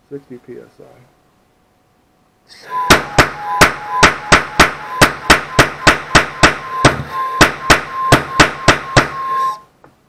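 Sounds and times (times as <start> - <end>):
faint steady whistle: 2.5 - 9.8
propane noise cannon bangs: 2.8 - 9.5.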